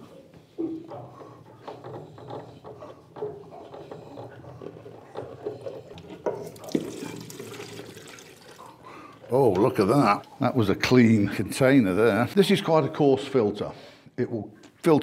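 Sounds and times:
fuel trickling into plastic container: 0:06.0 - 0:09.4.

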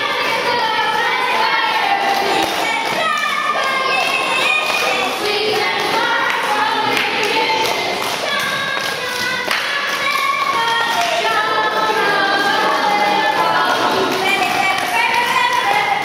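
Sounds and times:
boys singing together: 0:00.0 - 0:16.0
hands clapping: 0:00.0 - 0:16.0.

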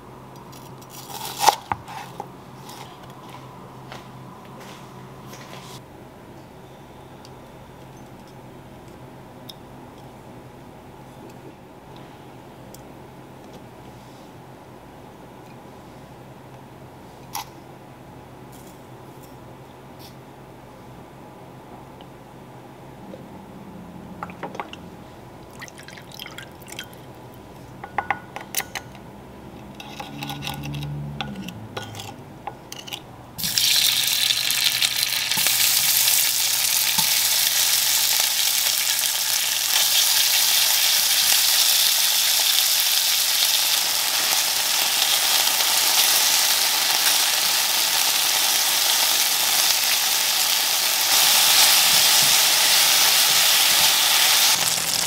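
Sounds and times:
beef sizzling in hot oil: 0:33.4 - 0:55.0.

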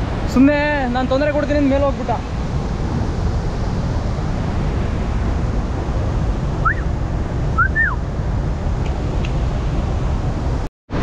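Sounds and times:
outdoor rushing noise: 0:00.0 - 0:11.0
short rising and falling chirps: 0:06.6 - 0:06.9, 0:07.5 - 0:08.0.

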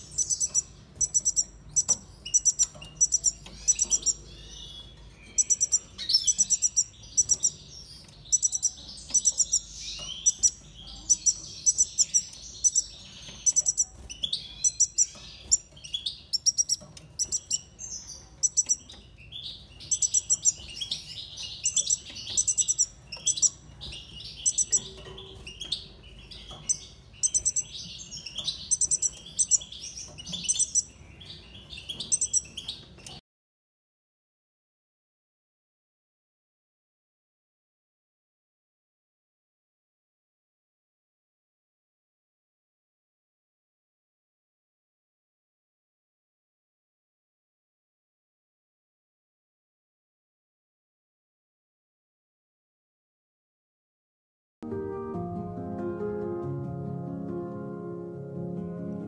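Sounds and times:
finches chirping and twittering: 0:00.0 - 0:33.2.

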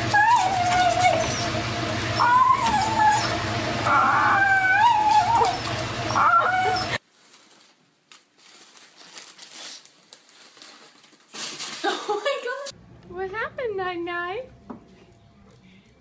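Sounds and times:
dog whining: 0:00.0 - 0:07.0.

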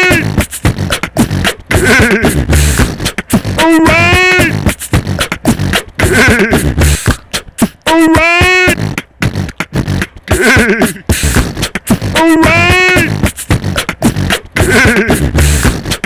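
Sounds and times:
beatbox drum hits: 0:00.0 - 0:16.0.

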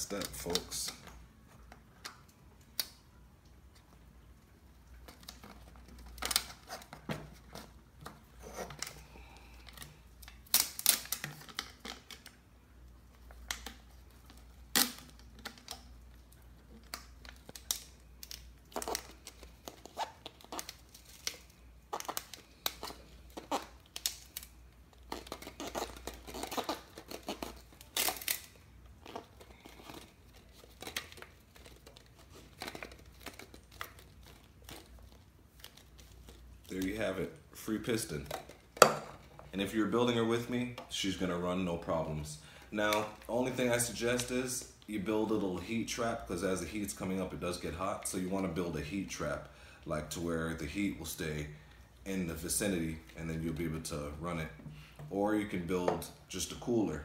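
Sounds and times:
tape tearing and crackling: 0:00.0 - 0:03.0, 0:04.9 - 0:41.9.

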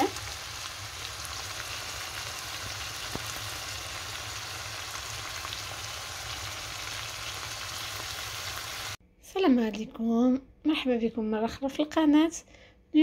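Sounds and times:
meat sizzling in a frying pan: 0:00.0 - 0:09.0.

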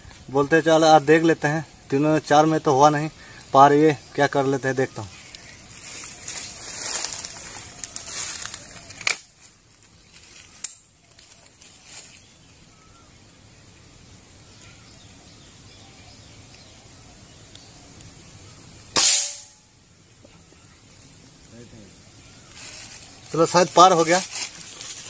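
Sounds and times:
handling rustle: 0:05.2 - 0:12.4, 0:22.4 - 0:25.0
air rifle shot: 0:19.0 - 0:19.6.

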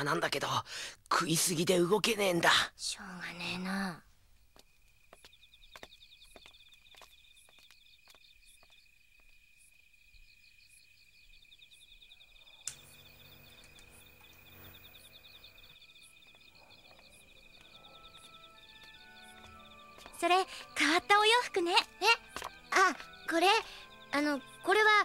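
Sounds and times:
insects chirping: 0:00.0 - 0:25.0
soft footsteps: 0:04.1 - 0:09.5, 0:16.2 - 0:20.7, 0:22.2 - 0:23.1
click: 0:12.6 - 0:12.8.

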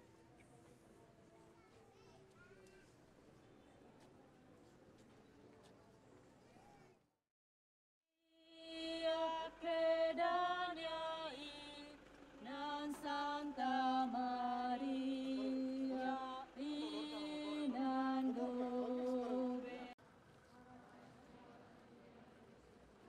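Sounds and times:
woman singing chant: 0:08.4 - 0:20.0.

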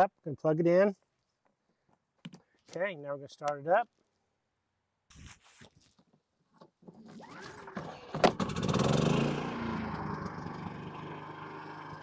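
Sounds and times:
generator engine pull-started: 0:06.9 - 0:12.0.

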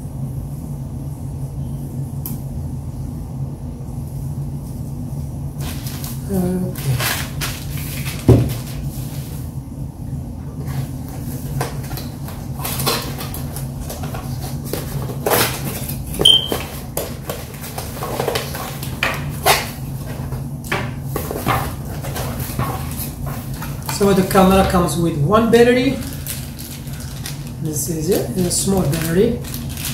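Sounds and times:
steady low hum: 0:00.0 - 0:29.9
cardboard packaging rustling: 0:05.6 - 0:09.5, 0:10.6 - 0:29.9.

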